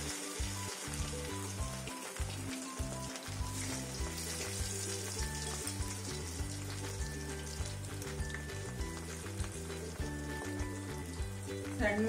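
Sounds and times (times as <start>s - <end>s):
food sizzling in hot oil: 0.0s - 12.0s
music of held low notes: 0.0s - 12.0s.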